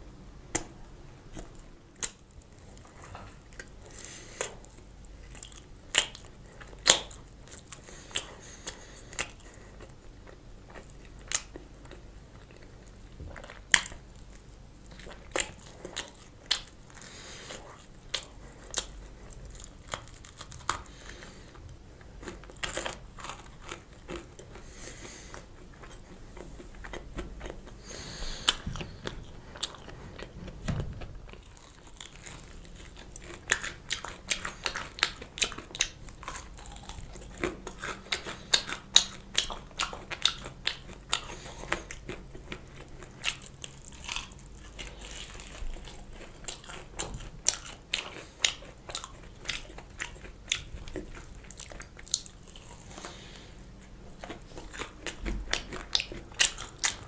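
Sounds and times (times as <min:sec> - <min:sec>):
crunchy chewing of fried chicken: 0:00.5 - 0:57.0.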